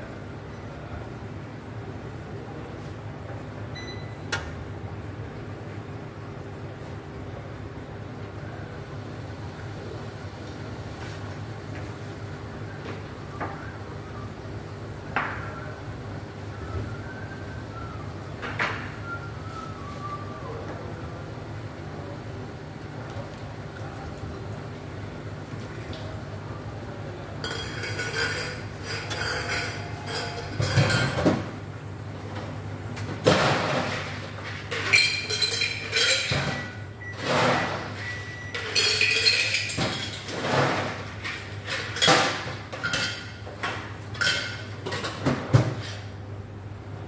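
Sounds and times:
glassware and dishes clinking: 27.4 - 31.3, 34.7 - 37.7, 38.6 - 40.8.

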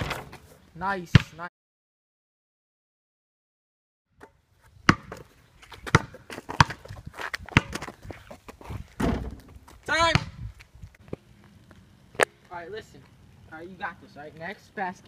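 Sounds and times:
basketball bouncing on asphalt: 4.2 - 12.4.

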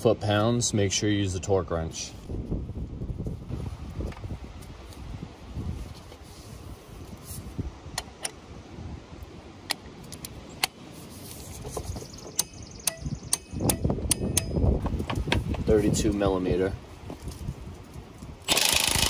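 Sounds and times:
rattle and handling noise: 11.0 - 12.4, 17.0 - 19.0
torque wrench clicks: 18.4 - 19.0.

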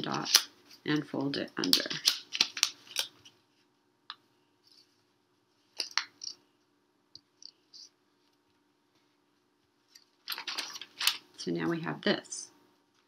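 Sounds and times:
paper being folded and creased: 0.0 - 3.7, 9.8 - 11.2.

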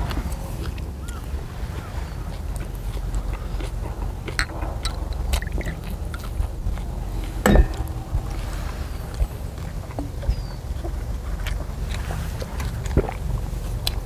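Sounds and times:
chewing: 0.0 - 14.0
steady low rumble: 0.0 - 14.0
chopsticks and glasses clinking: 7.4 - 8.7
loud knock: 7.4 - 8.9.

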